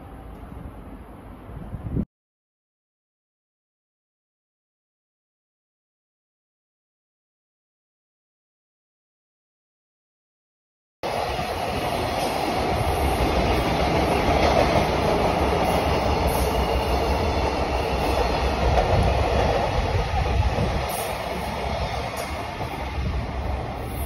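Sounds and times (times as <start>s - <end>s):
train wheels rumbling on rails: 11.0s - 24.0s.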